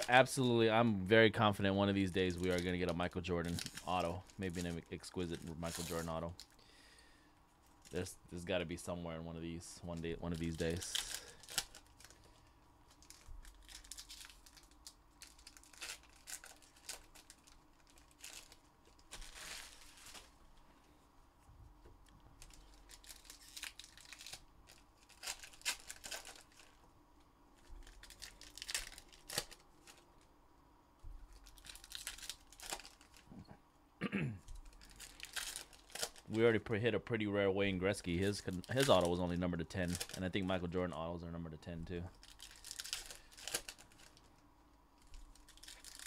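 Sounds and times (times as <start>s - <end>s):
foil wrappers torn and crinkled: 2.0s - 6.6s, 9.9s - 20.4s, 22.4s - 26.8s, 27.6s - 30.3s, 31.3s - 33.3s, 34.5s - 36.4s, 38.0s - 40.6s, 42.1s - 46.0s.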